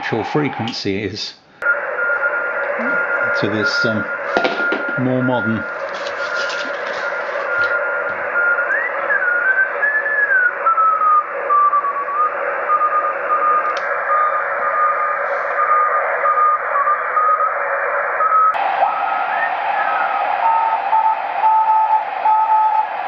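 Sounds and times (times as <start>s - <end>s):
receiver hiss: 1.6s - 18.2s
morse code tone: 1.7s - 8.7s, 19.8s - 22.9s
click: 13.7s - 13.9s.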